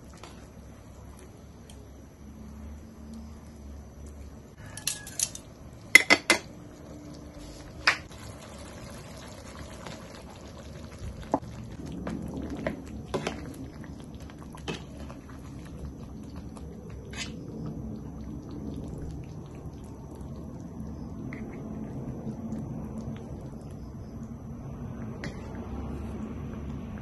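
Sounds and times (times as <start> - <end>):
sauce bubbling in frying pan: 5.6 - 27.0.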